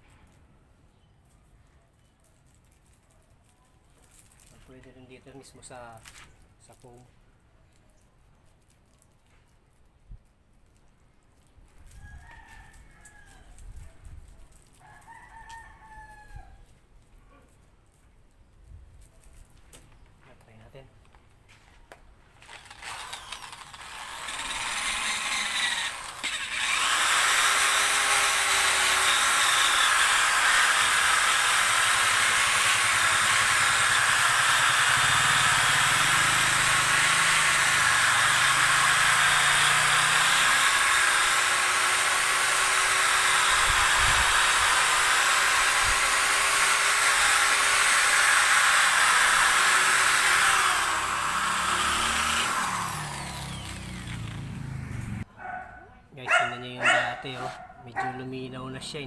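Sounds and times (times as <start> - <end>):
electric polisher running: 22.5 - 55.3.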